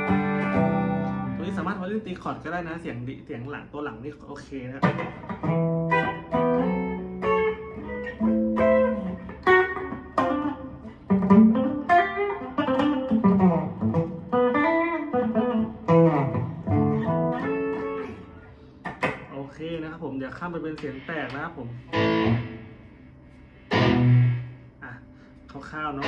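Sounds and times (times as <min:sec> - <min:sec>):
clean electric guitar melody: 0:00.0 - 0:01.7, 0:04.8 - 0:19.2, 0:21.8 - 0:23.0, 0:23.7 - 0:24.7.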